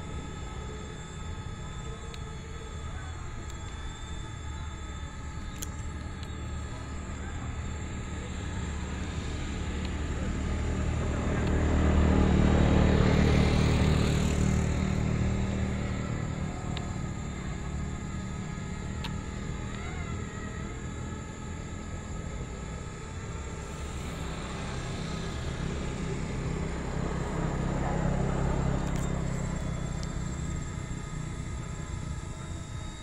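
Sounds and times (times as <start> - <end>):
steady hum with high tones: 0.0 - 33.0
motor vehicle passing by: 8.9 - 16.8, 23.5 - 30.8.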